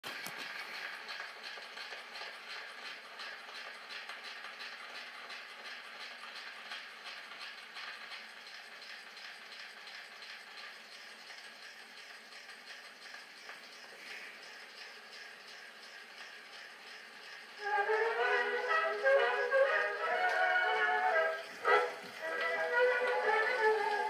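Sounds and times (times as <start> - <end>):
gramophone record hiss and crackle: 8.4 - 24.0.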